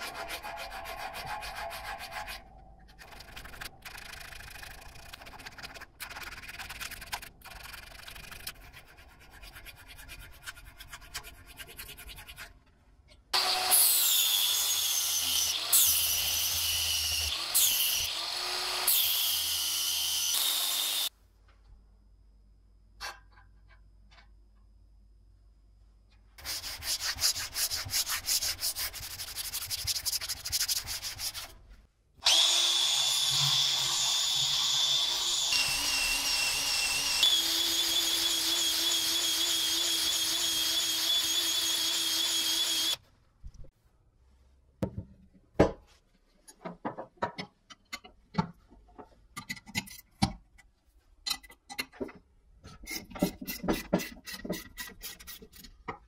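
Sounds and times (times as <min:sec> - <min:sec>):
power tool sanding steel whine: 0:32.2 - 0:43.0.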